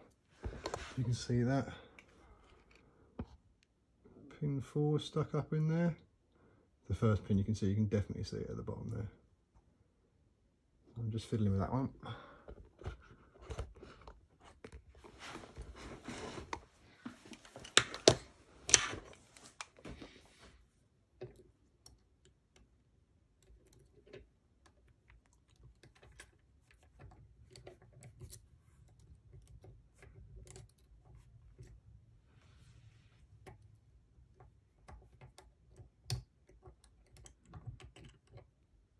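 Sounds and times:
rustling and clattering at workbench: 0.2s - 1.3s, 12.4s - 21.9s.

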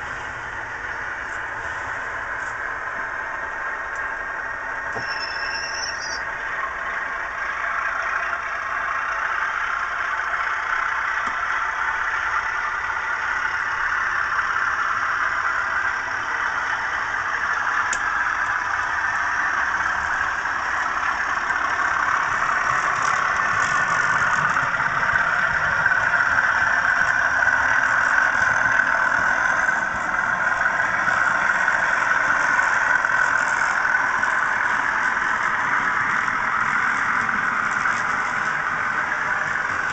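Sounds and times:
diesel engine sound through small speaker: 0.0s - 39.9s.

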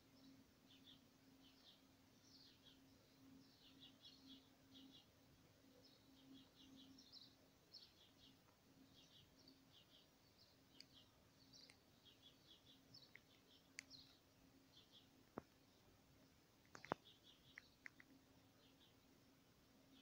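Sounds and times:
small birds chirping: 0.0s - 20.0s
small clicks: 10.7s - 11.9s, 13.0s - 14.2s, 16.6s - 18.2s.

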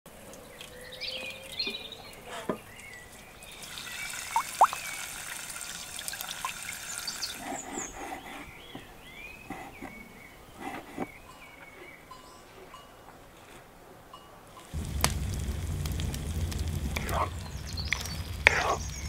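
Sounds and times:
birds chirping: 0.1s - 13.3s, 14.5s - 19.0s
hand washing in water: 3.5s - 8.0s
tap water running into metal bowl: 3.6s - 7.6s.

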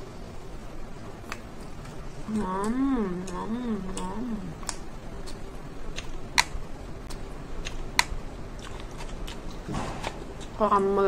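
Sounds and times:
woman humming with enjoyment: 2.3s - 4.6s.

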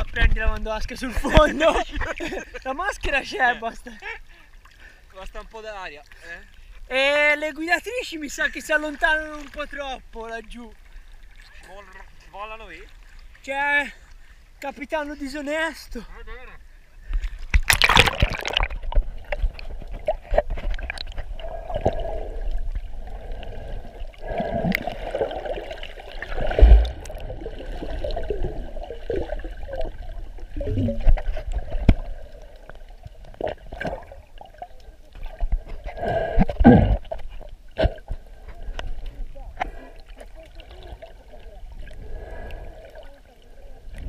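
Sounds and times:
muffled underwater sloshing: 16.7s - 44.0s
underwater clicks and knocks: 17.4s - 22.0s
splash: 17.5s - 22.2s, 24.2s - 32.2s.

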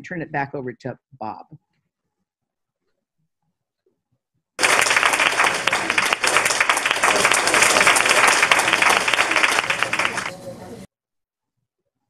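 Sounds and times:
crowd applauding: 4.6s - 10.9s.

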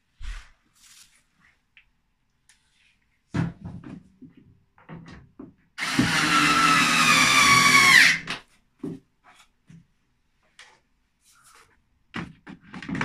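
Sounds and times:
electric screwdriver motor whining: 5.8s - 8.2s.

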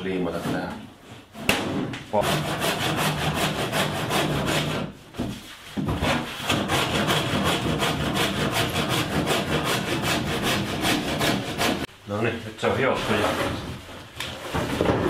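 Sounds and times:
handsaw cutting wood: 2.1s - 5.0s, 5.9s - 11.9s.

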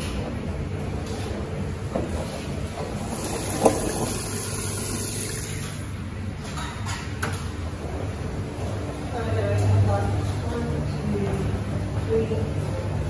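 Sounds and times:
washing machine humming: 0.0s - 13.0s
water sloshing in drum: 3.0s - 5.8s.

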